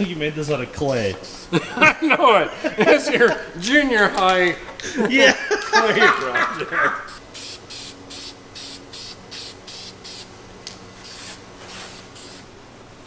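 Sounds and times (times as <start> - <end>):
spray paint can hissing: 7.1 - 10.3, 11.0 - 12.5.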